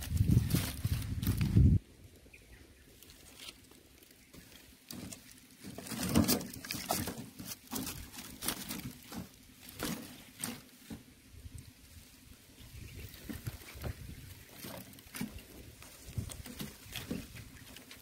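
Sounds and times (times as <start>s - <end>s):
rustling of dry sticks and fronds: 0.0s - 18.0s
wood knocking on wood and wire: 4.3s - 11.1s.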